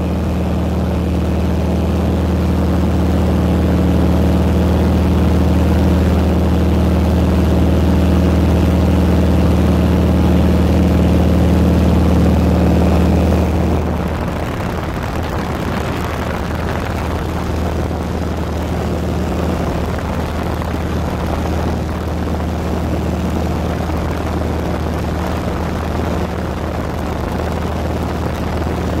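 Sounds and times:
propeller airplane engine drone: 0.0s - 29.0s
rush of air: 12.4s - 29.0s.

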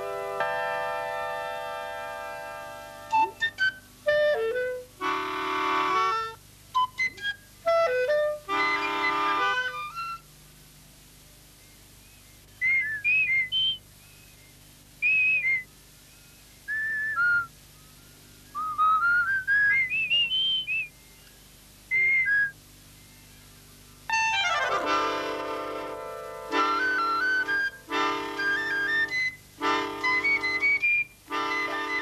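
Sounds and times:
woodwind music: 0.0s - 10.3s, 24.1s - 32.0s.

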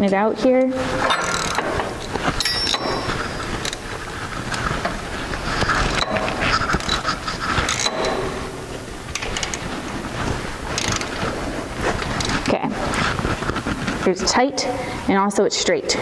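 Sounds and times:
metal scraping: 0.8s - 11.4s
ratchet wrench clicking: 10.8s - 11.1s.

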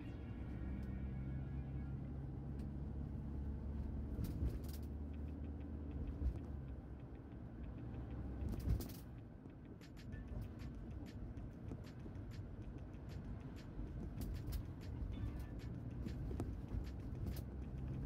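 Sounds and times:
engine hum and road rumble: 0.0s - 18.0s.

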